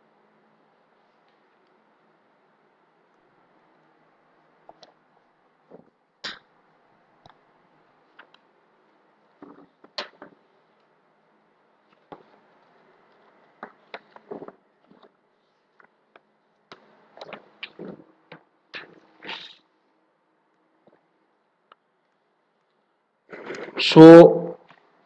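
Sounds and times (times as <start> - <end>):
faint clicks and taps: 4.6 - 5.0, 11.8 - 19.1, 20.5 - 22.8.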